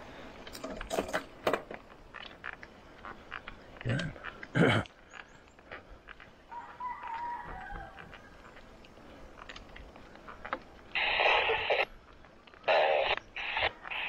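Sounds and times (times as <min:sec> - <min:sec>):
rooster crowing: 0:06.5 - 0:08.4.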